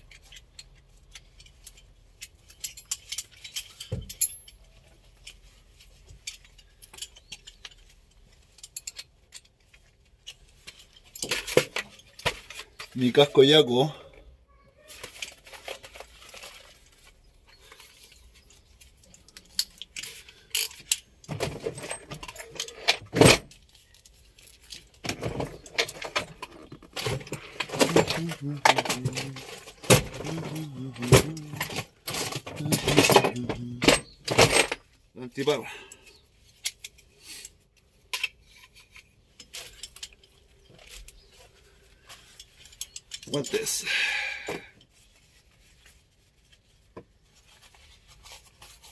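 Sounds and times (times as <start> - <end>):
metal tools clinking in toolbox: 0.0 - 13.4, 18.8 - 41.4, 42.1 - 44.9.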